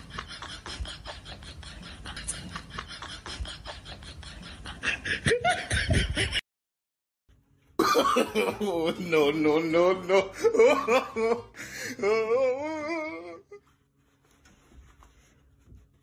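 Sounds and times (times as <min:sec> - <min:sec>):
person laughing: 0:00.0 - 0:06.4, 0:07.8 - 0:13.6.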